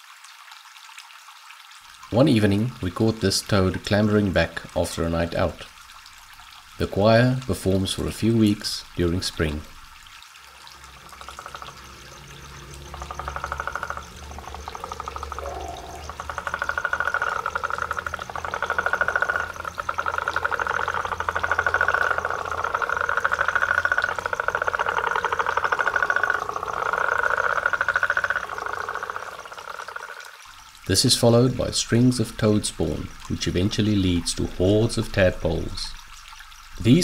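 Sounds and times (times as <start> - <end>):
toads trilling: 10.5 - 30.4.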